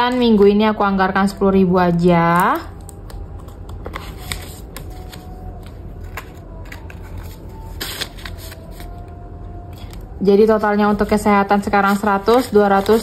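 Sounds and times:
paper and plastic rustling: 2.2s - 13.0s.

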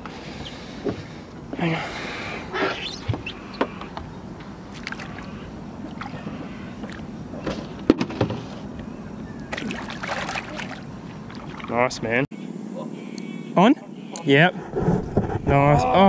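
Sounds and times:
water sloshing and splashing: 4.4s - 8.5s, 9.5s - 12.0s.

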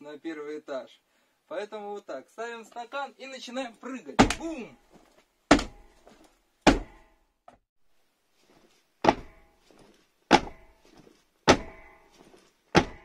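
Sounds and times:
heavy thuds on wooden floor: 5.5s - 5.8s, 6.7s - 7.0s, 9.0s - 9.3s, 10.3s - 10.7s, 11.5s - 11.8s, 12.8s - 13.0s.

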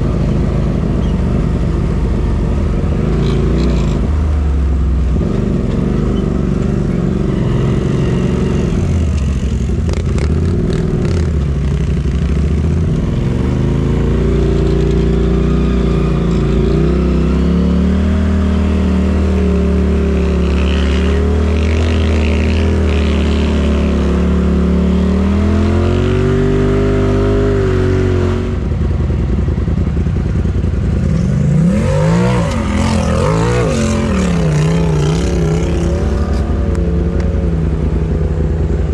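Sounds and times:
utility vehicle engine revving: 0.0s - 38.9s.

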